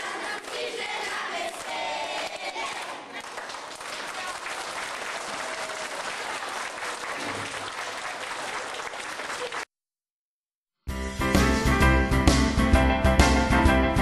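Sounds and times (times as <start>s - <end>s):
audience applauding: 2.6s - 9.7s
music: 10.8s - 14.0s.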